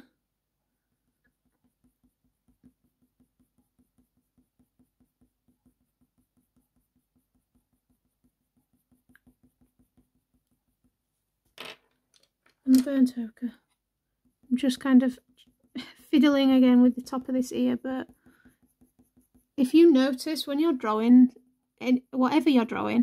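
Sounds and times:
pencil scratching on paper: 0.9s - 11.4s, 13.7s - 20.8s.

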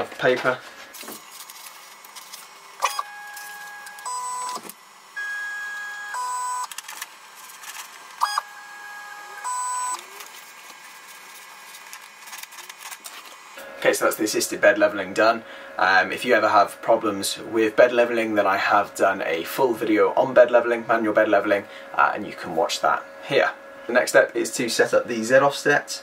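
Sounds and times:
stepper motors whining: 1.3s - 13.9s.

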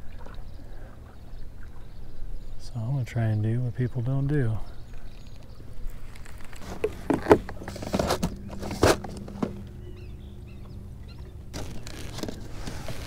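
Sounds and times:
steady low hum: 4.6s - 13.0s.

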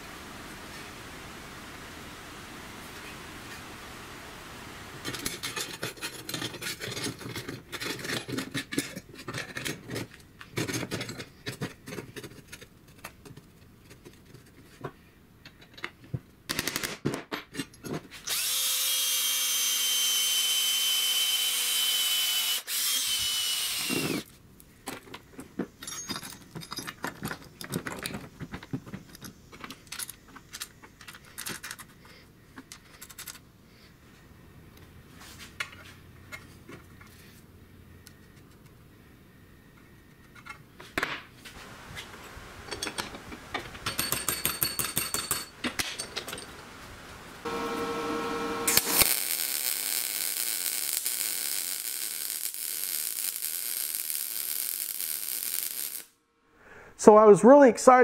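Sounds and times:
power drill boring through metal: 18.3s - 24.3s, 47.5s - 53.4s
metal parts clinking: 25.8s - 28.2s.

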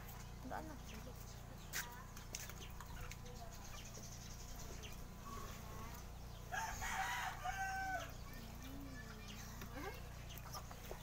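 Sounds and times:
rooster crowing: 6.5s - 8.2s.

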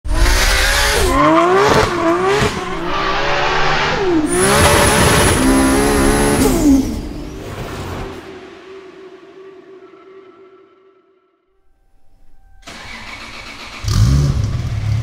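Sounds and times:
turbo car engine revving: 0.1s - 7.4s, 12.7s - 15.0s.

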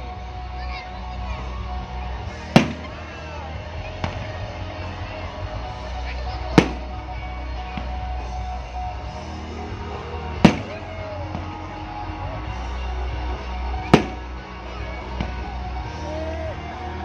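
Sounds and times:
background music: 0.0s - 17.0s
firework bangs: 2.5s - 3.1s, 6.5s - 7.0s, 10.4s - 11.6s, 13.8s - 14.4s.

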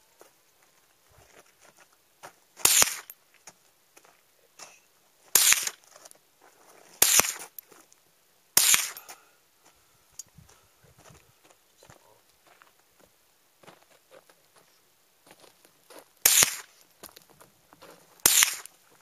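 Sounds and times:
rifle shots: 2.6s - 3.1s, 5.3s - 5.8s, 7.0s - 7.5s, 8.6s - 9.1s, 16.2s - 16.7s, 18.2s - 18.7s.

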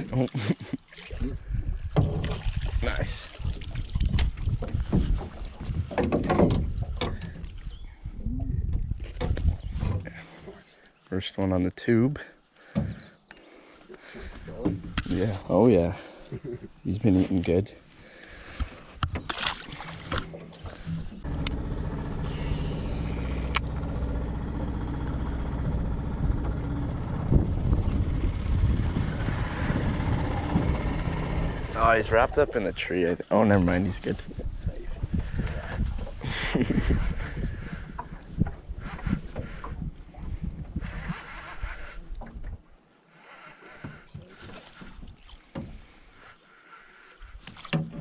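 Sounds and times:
water lapping against boat: 0.0s - 11.0s, 12.4s - 48.0s
wind rumbling on microphone: 1.1s - 10.2s, 25.3s - 32.8s, 33.5s - 42.8s
outboard motor running: 18.0s - 48.0s
fish splashing: 19.2s - 21.1s.

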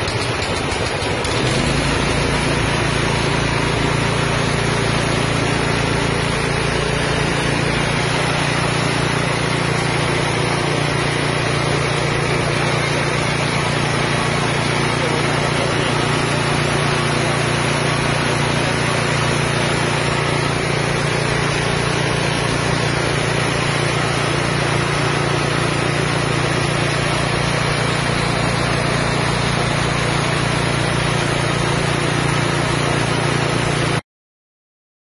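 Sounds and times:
engine droning: 0.0s - 34.0s
whir of grain in huller: 0.0s - 34.0s.

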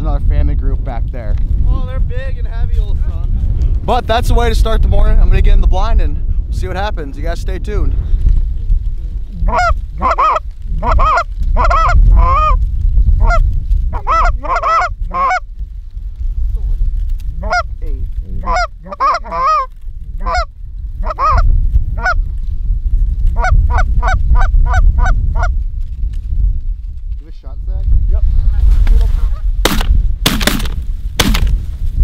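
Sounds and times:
low rumble: 0.0s - 32.0s
geese honking and clucking: 9.4s - 12.6s, 13.2s - 15.5s, 17.4s - 17.7s, 18.4s - 22.2s, 23.4s - 25.5s.

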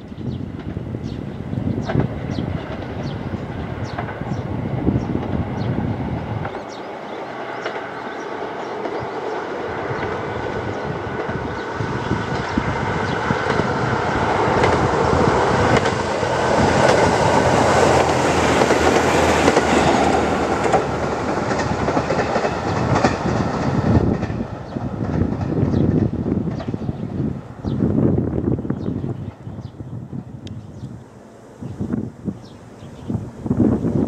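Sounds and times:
diesel train passing: 0.0s - 34.0s
wheels clicking over rail joints: 12.3s - 27.0s.

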